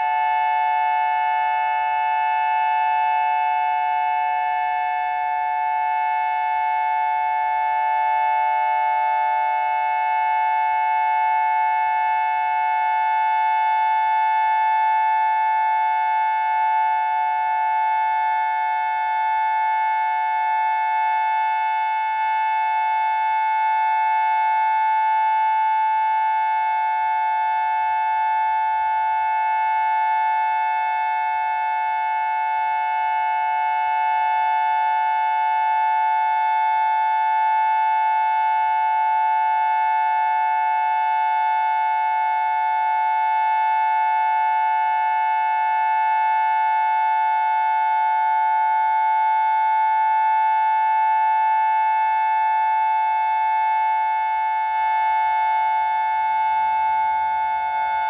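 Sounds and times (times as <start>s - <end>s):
dual-tone warning siren: 0.0s - 58.0s.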